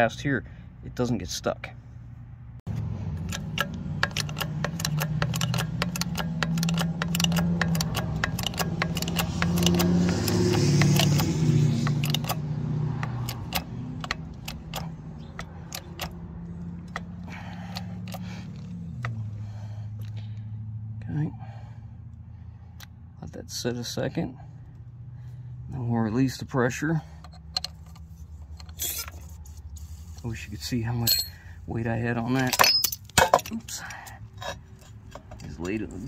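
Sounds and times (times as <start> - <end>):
engine running hum: 1.6 - 36.0
bottle jack metallic clicks: 3.2 - 12.4, 13.0 - 16.2.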